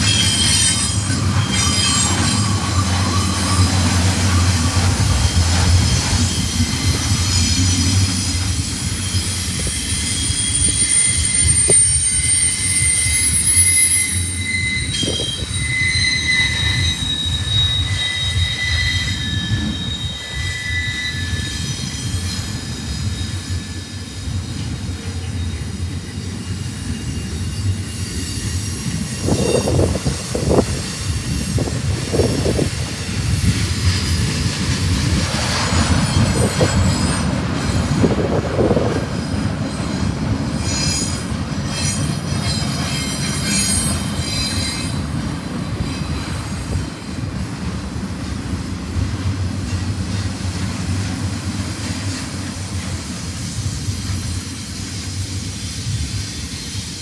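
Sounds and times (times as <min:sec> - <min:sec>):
wheel squeal: 0:00.0 - 0:47.4
train cars rumbling on rails: 0:00.0 - 0:57.0.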